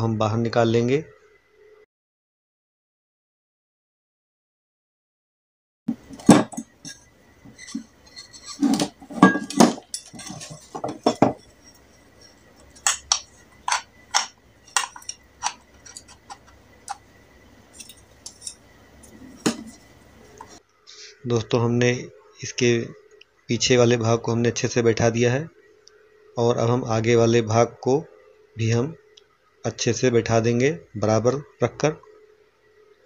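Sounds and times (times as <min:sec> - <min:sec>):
metal clinks and knocks: 0:05.9 - 0:17.1, 0:17.7 - 0:20.6.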